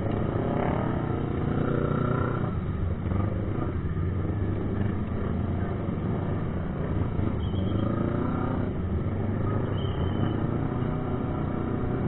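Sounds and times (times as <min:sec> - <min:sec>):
low rumble of road traffic: 0:00.0 - 0:12.0.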